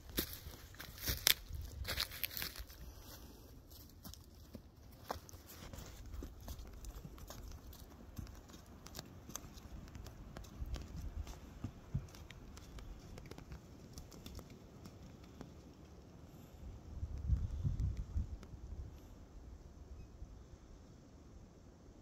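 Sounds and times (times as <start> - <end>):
hooves crunching leaves: 0.0 - 15.0.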